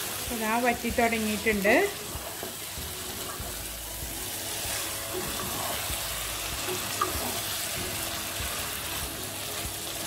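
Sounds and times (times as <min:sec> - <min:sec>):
chicken sizzling in a pan: 0:00.0 - 0:10.0
wooden spatula scraping a pan: 0:04.3 - 0:08.7.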